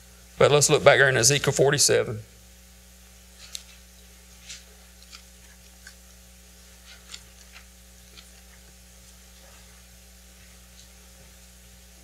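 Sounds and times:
low room hum: 0.0 - 12.0
paper pages rustling: 3.4 - 5.9.

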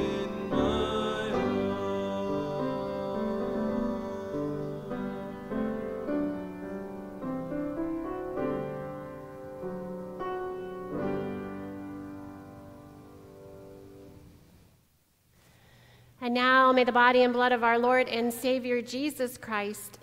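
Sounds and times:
piano playing slow chords: 0.0 - 14.4.

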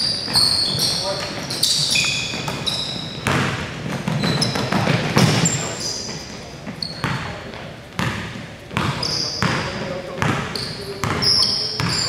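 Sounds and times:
sneakers squeaking on court: 0.0 - 12.0
players' voices: 4.3 - 12.0.

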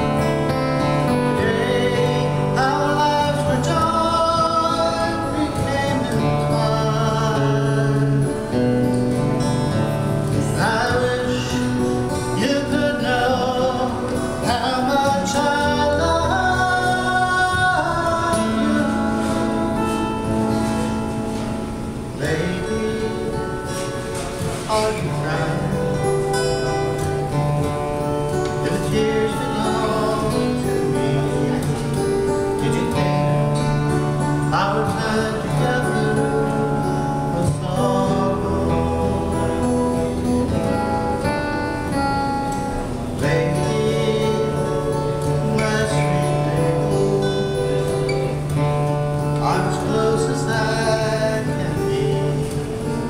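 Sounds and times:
acoustic guitars strummed: 0.0 - 53.0
people singing: 1.0 - 8.5, 10.3 - 20.4, 28.5 - 31.8, 34.5 - 40.2.

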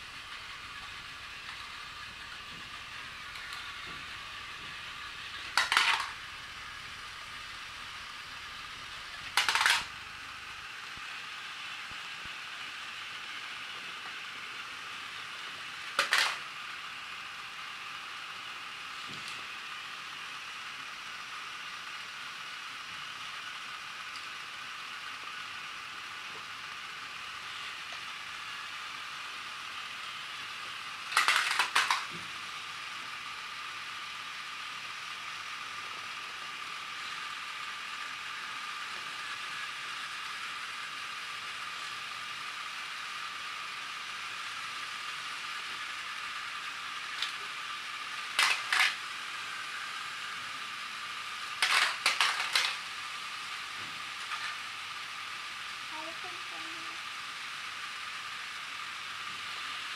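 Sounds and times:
plastic trains clattering: 0.0 - 7.6, 8.5 - 10.0, 15.6 - 16.5, 30.5 - 32.4, 47.0 - 49.6, 51.2 - 53.0, 54.0 - 54.8
toy trains whirring: 0.0 - 59.9.

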